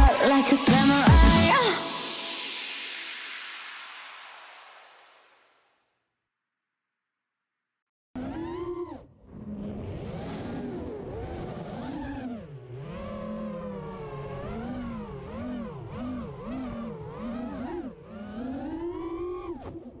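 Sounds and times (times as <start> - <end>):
drone motors whining: 8.2 - 20.0.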